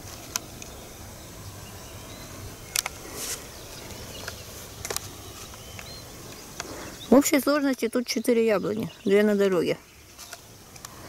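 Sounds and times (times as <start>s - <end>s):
faint bird chirps: 0.6s - 11.0s.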